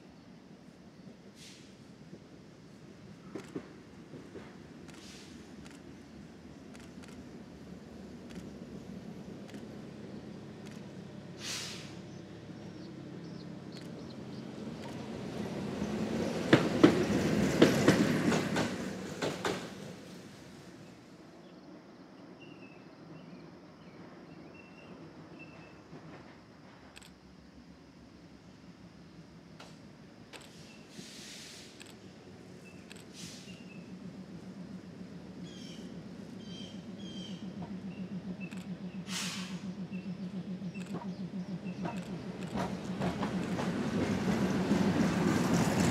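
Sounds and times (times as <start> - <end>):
streetcar rumbling past: 0.0 - 45.9
brief hiss: 1.3 - 1.9, 4.9 - 5.5, 11.4 - 12.0, 30.4 - 32.0, 33.0 - 33.6, 39.1 - 39.6
wheels clicking over track: 40.8 - 45.9.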